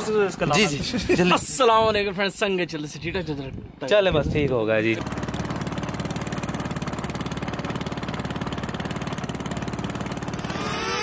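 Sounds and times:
boat engine chugging: 5.0s - 10.6s.

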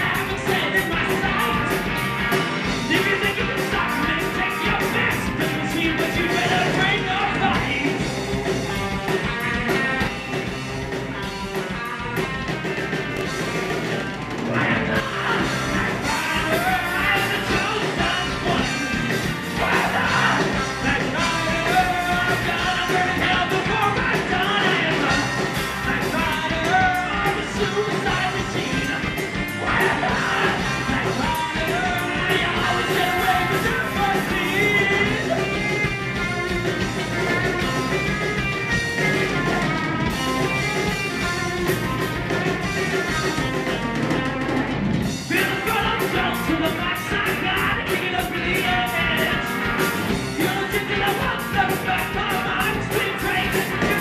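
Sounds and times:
man singing: 0.0s - 8.1s, 14.5s - 36.0s, 45.3s - 54.0s
bass guitar: 0.0s - 54.0s
drum kit: 0.0s - 54.0s
electric guitar: 0.0s - 54.0s.

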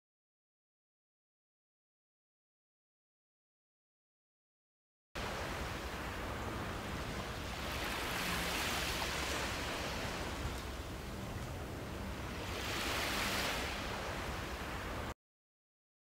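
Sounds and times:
small waves washing onto beach: 5.2s - 15.2s.

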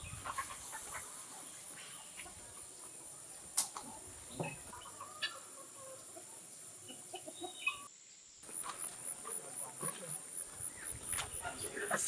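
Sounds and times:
hens clucking: 0.0s - 7.9s.

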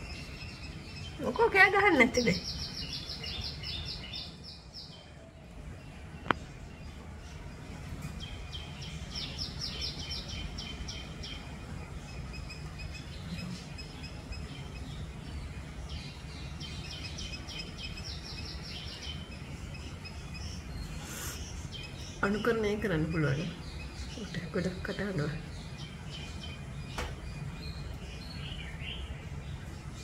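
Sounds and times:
bird chirping rapidly: 12.2s - 29.1s.

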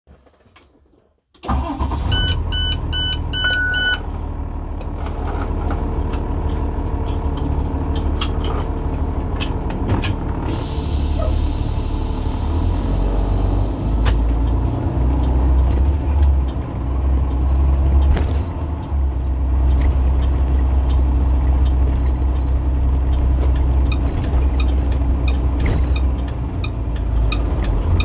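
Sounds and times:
diesel engine starting and idling: 1.4s - 28.0s
warning beeps: 2.1s - 4.0s.

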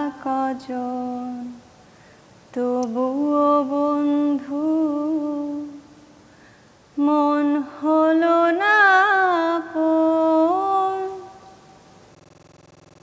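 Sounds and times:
woman singing unaccompanied: 0.0s - 1.7s, 2.5s - 6.2s, 7.0s - 11.6s.

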